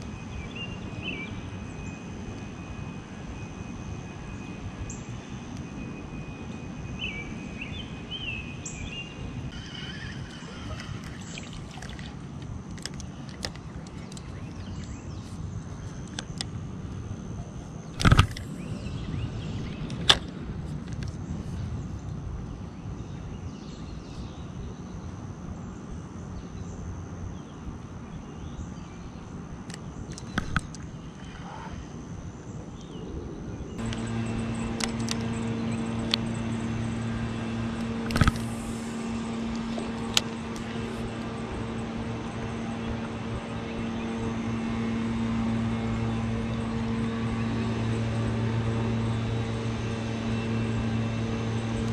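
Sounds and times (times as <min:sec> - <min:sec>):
low mechanical hum: 0:00.0 - 0:51.9
outdoor background noise: 0:00.0 - 0:51.9
sharp clicks: 0:29.7 - 0:30.9, 0:37.8 - 0:40.8.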